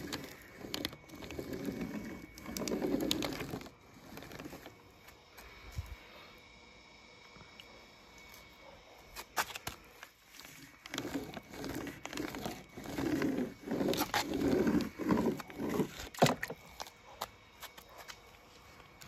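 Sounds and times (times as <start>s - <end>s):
toy car scraping through slime: 0.0s - 4.8s, 10.3s - 16.6s.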